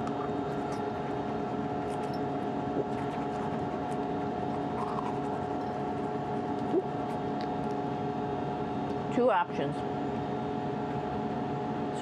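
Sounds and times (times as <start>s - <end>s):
cabin fans humming: 0.0s - 12.0s
toothbrush brushing teeth: 0.1s - 7.5s.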